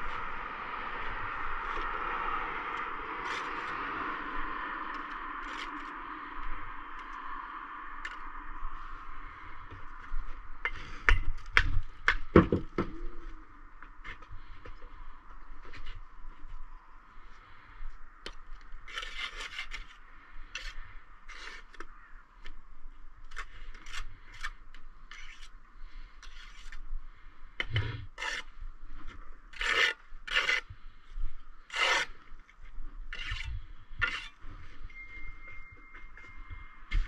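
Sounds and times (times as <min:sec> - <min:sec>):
trowel scraping mortar: 0:03.2 - 0:03.8, 0:18.9 - 0:21.9, 0:23.3 - 0:25.5, 0:26.2 - 0:26.8, 0:27.6 - 0:28.5, 0:29.5 - 0:30.7, 0:31.7 - 0:32.2, 0:33.1 - 0:34.4.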